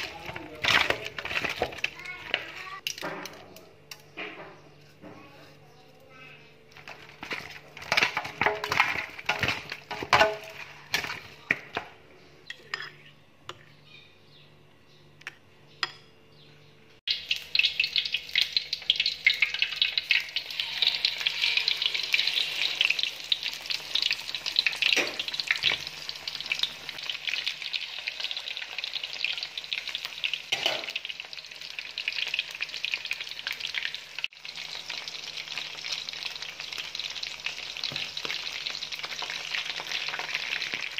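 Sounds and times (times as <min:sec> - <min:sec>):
chicken deep-frying in oil: 0:00.0 - 0:04.0, 0:06.7 - 0:11.8, 0:17.1 - 0:40.9
sharp clicks and handling noises: 0:00.3 - 0:05.1.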